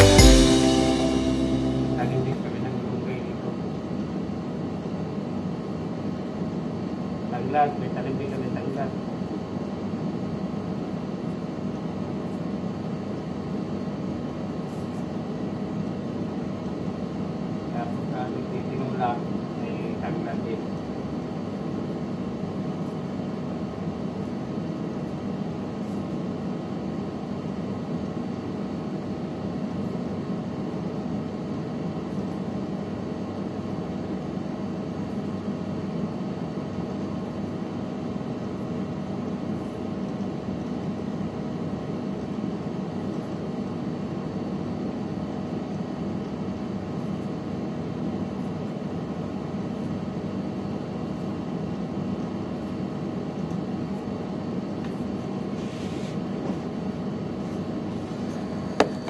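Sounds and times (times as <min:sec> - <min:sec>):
appliance humming: 0:56.7 - 0:59.0.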